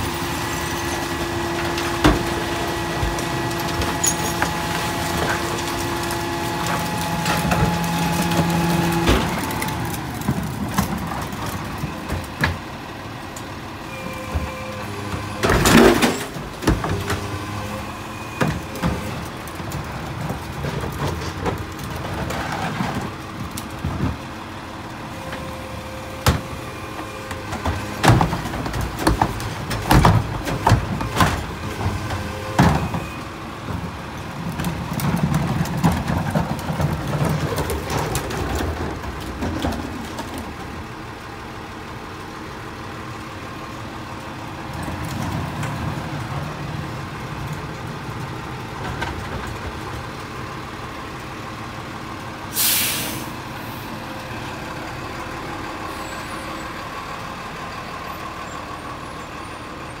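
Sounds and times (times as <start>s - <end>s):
garbage truck engine and hydraulics: 0.0s - 60.0s
air brake hiss: 52.5s - 53.4s.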